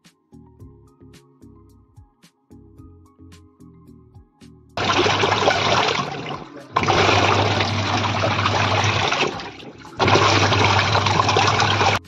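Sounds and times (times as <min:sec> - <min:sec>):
motor hum: 0:04.8 - 0:12.0
water churning in washing machine: 0:04.8 - 0:12.0.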